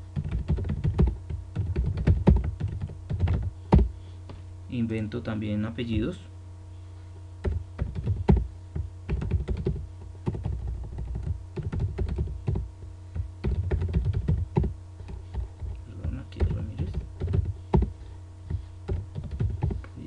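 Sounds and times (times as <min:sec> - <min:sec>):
steady low hum: 0:00.0 - 0:20.0
computer keyboard typing: 0:00.2 - 0:03.9, 0:07.4 - 0:08.5, 0:09.1 - 0:17.9, 0:18.5 - 0:19.8.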